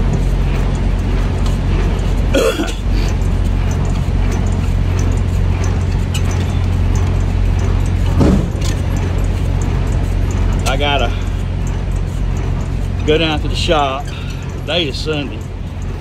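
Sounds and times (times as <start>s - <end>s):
truck diesel engine drone: 0.0s - 16.0s
person clearing throat: 2.3s - 2.9s.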